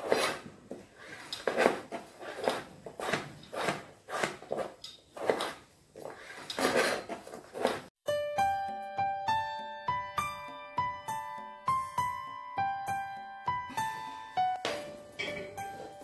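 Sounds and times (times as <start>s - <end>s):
knife chopping on cutting board: 1.5s - 5.6s.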